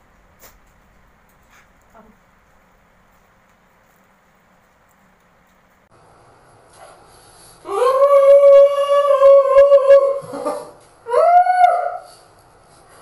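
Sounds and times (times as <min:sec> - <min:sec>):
high howl: 0:07.6 - 0:12.3.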